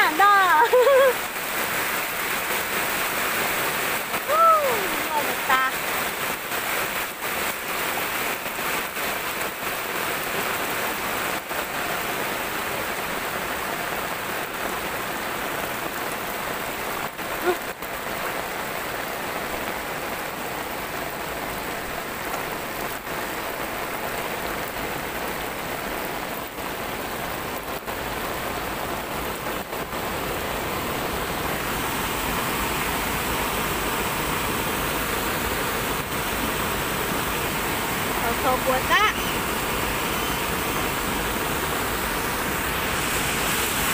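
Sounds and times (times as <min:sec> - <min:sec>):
floodwater running: 0:00.0 - 0:43.9
heavy rain: 0:00.0 - 0:43.9.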